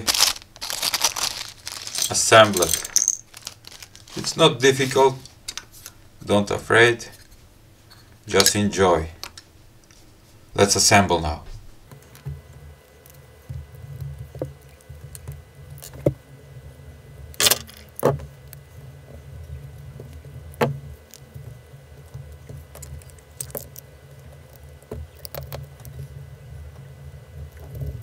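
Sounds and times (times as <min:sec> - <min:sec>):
small screws clicking and clinking: 0:00.0 - 0:04.2
low steady rumble: 0:00.0 - 0:17.4.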